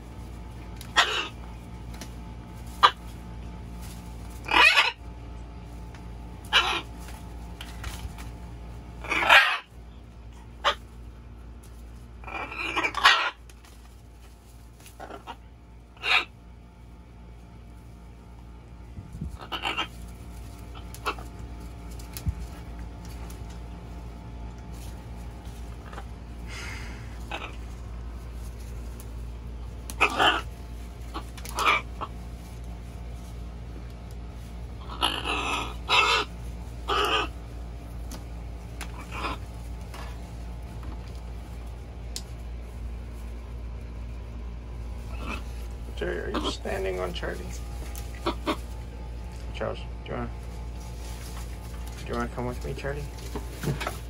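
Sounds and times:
steady low hum: 0:00.0 - 0:54.0
macaws squawking: 0:00.8 - 0:01.8, 0:02.7 - 0:03.5, 0:04.2 - 0:05.3, 0:06.4 - 0:08.3, 0:09.0 - 0:11.0, 0:12.1 - 0:16.6, 0:19.2 - 0:23.3, 0:25.4 - 0:29.0, 0:29.7 - 0:32.6, 0:34.7 - 0:38.1, 0:38.7 - 0:40.2, 0:45.0 - 0:49.0.

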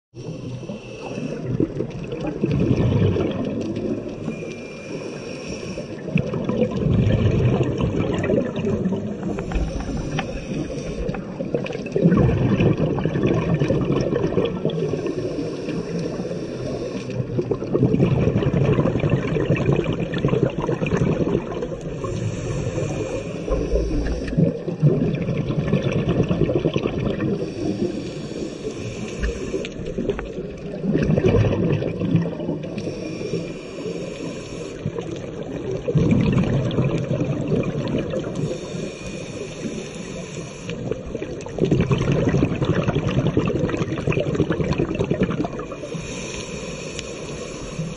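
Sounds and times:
regulator hissing on inhale: 0:00.2 - 0:01.8, 0:04.0 - 0:06.3, 0:08.9 - 0:11.9, 0:14.7 - 0:17.5, 0:21.6 - 0:24.7, 0:27.2 - 0:30.6, 0:32.6 - 0:35.6, 0:38.0 - 0:41.5, 0:45.6 - 0:47.9
exhaled bubbles gurgling: 0:00.2 - 0:47.9.

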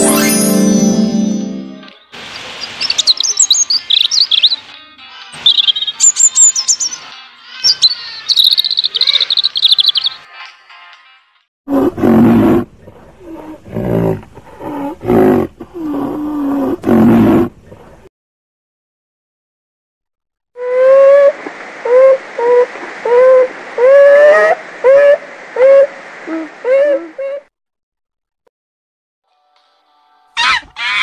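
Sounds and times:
robin singing: 0:02.0 - 0:10.3.

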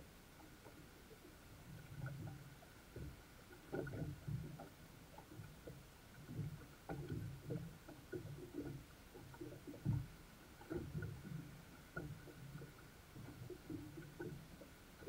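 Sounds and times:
water lapping against boat hull: 0:00.0 - 0:15.0.

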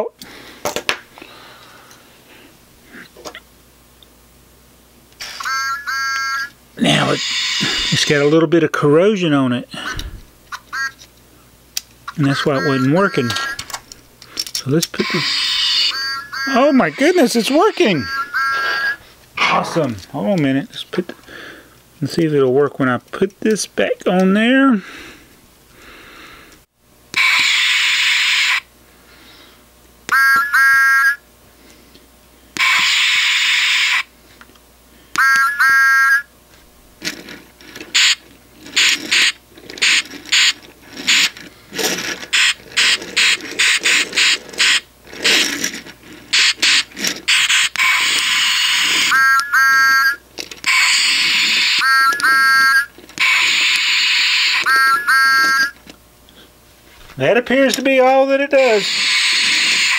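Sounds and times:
toy whistle toot: 0:05.2 - 0:08.4, 0:10.6 - 0:11.0, 0:12.1 - 0:13.6, 0:15.0 - 0:19.0, 0:27.2 - 0:28.6, 0:30.1 - 0:31.2, 0:32.6 - 0:34.1, 0:35.1 - 0:36.3, 0:46.4 - 0:55.8, 0:58.7 - 0:59.9
quick toy train chuffing: 0:06.8 - 0:08.2, 0:14.4 - 0:19.0, 0:37.9 - 0:49.9, 0:50.7 - 0:55.7, 0:58.7 - 0:59.9
toy steam hiss: 0:06.9 - 0:08.2, 0:14.4 - 0:16.1, 0:27.2 - 0:28.6, 0:32.6 - 0:34.0, 0:37.9 - 0:49.3, 0:50.7 - 0:55.7, 0:58.6 - 0:59.9.

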